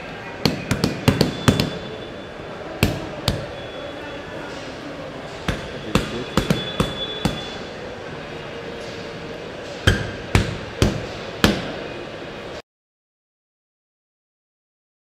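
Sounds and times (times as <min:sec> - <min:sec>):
steady background hum: 0:00.0 - 0:12.6
sharp knocks: 0:00.4 - 0:01.8.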